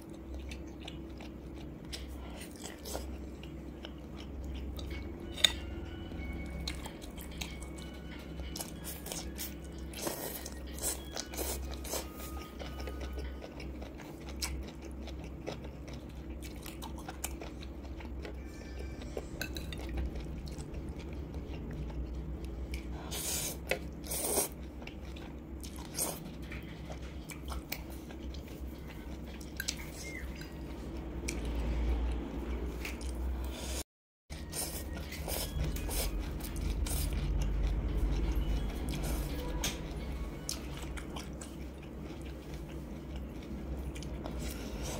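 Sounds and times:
chewing and biting noodles: 34.4s - 44.9s.

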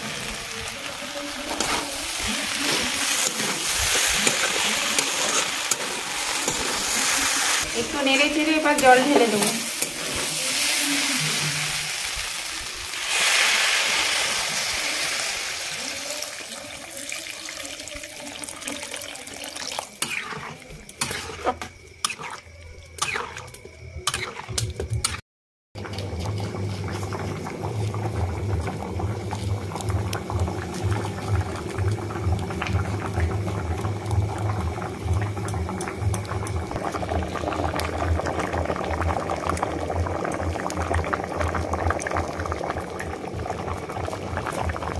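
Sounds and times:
water poured into hot pan hissing: 0.0s - 22.5s, 25.9s - 44.9s
food bubbling at a boil: 0.0s - 25.2s, 25.8s - 44.9s
spatula scraping metal pan: 20.0s - 22.4s.

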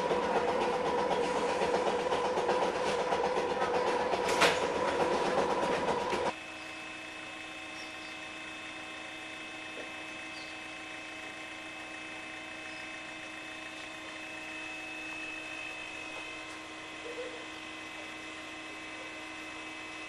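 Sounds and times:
wheels clattering over rails: 0.0s - 6.3s
railcar motor whine: 0.0s - 20.0s.

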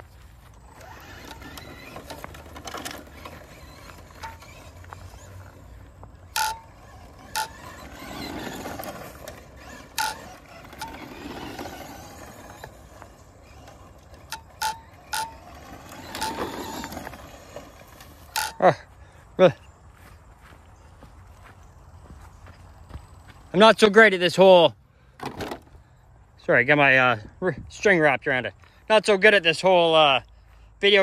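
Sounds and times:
rc car motor whine: 0.1s - 18.7s.

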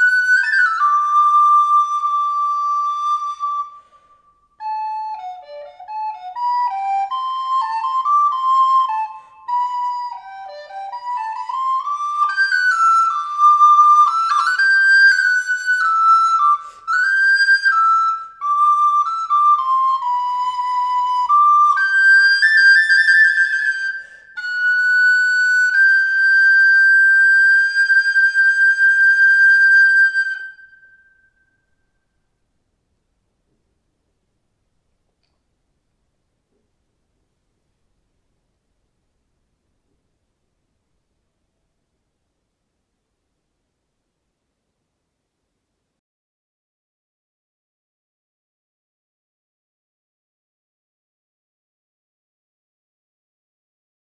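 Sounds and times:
wooden flute melody: 0.0s - 32.3s
flute player breathing: 3.5s - 4.6s, 8.9s - 9.6s, 16.5s - 17.1s, 23.8s - 24.6s.

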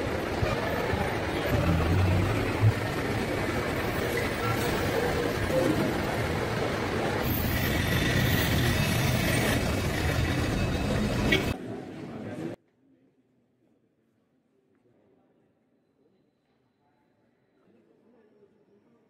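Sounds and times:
bus engines running: 0.0s - 11.6s
traffic: 0.0s - 11.9s.

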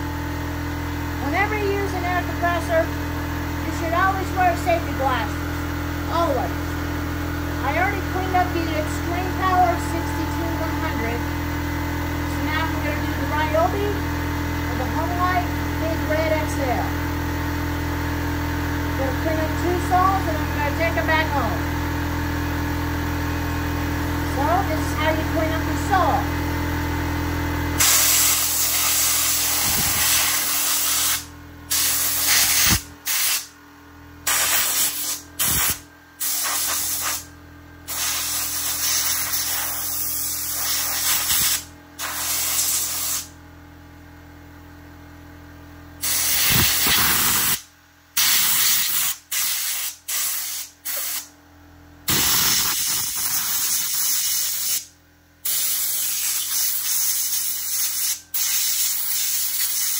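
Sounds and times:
compressed air blow gun hissing: 27.8s - 33.5s, 34.3s - 37.2s, 37.9s - 43.3s, 46.0s - 47.6s, 48.2s - 51.2s.

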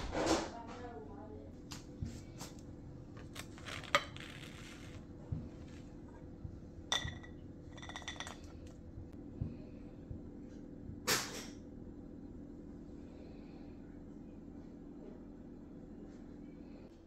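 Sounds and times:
ceramic dishes clinking: 6.9s - 8.6s.

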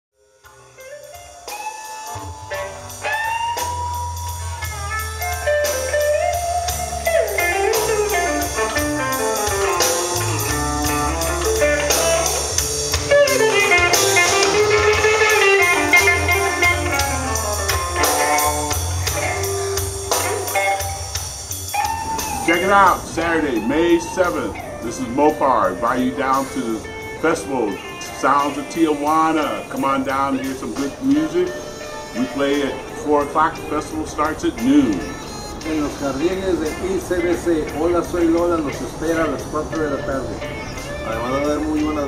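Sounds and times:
blues band music: 0.3s - 42.0s.

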